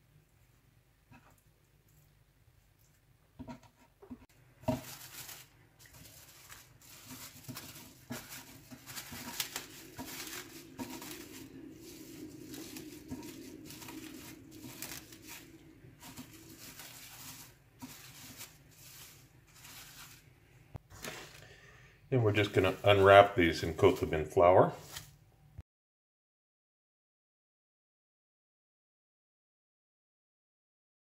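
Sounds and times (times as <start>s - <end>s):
cling film crinkling: 4.7s - 20.3s, 22.2s - 25.2s.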